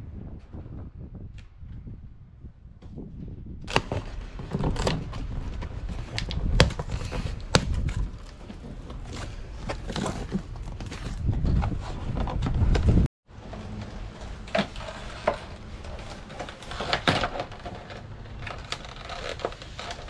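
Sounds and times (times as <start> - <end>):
low rumble: 0.0 - 14.4
cardboard flaps rustling: 3.7 - 20.0.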